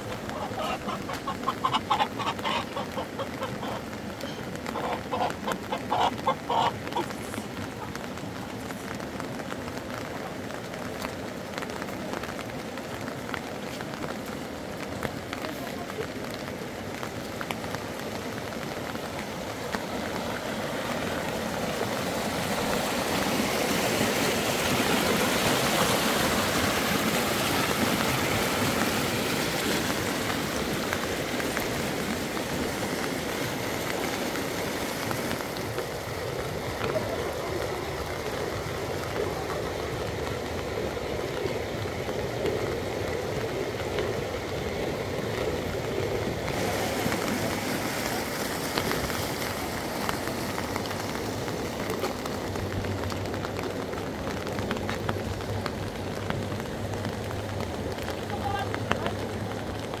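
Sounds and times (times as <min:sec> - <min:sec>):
running water rushing: 0:00.0 - 1:00.0.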